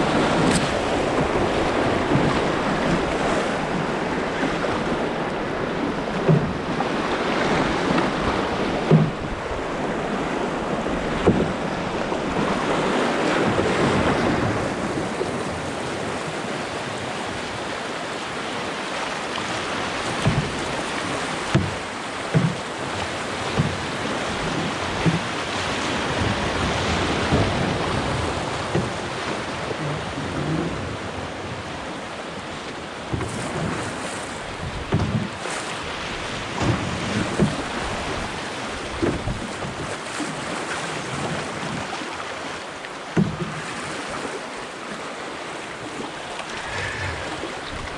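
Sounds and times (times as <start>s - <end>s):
whitewater rushing: 0.0s - 47.9s
short low knocks: 8.8s - 9.4s
wind on microphone: 45.8s - 47.9s.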